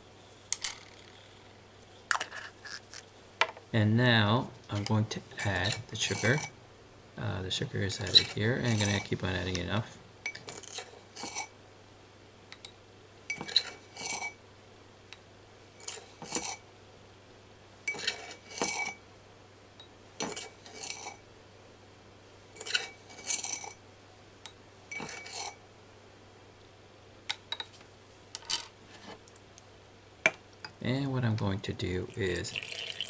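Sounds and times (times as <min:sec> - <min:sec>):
wooden spoon scraping glass jar: 0:04.8 - 0:06.5, 0:07.9 - 0:09.2, 0:10.5 - 0:11.5, 0:13.3 - 0:14.4, 0:15.8 - 0:16.6, 0:17.9 - 0:19.0, 0:20.2 - 0:21.2, 0:22.6 - 0:23.8, 0:24.9 - 0:25.6.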